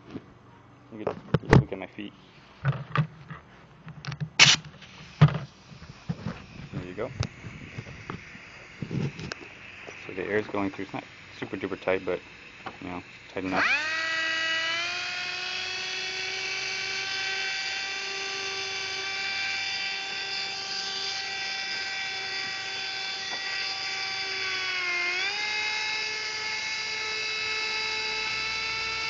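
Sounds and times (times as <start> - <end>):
air die grinder whining: 4.4 - 29.0.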